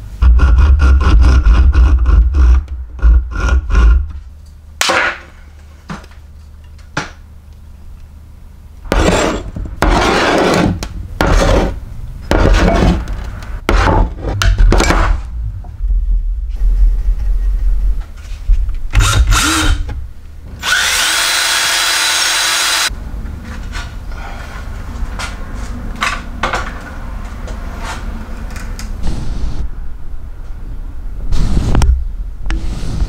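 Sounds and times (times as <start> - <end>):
hand tool scraping wood: 8.9 - 13.0.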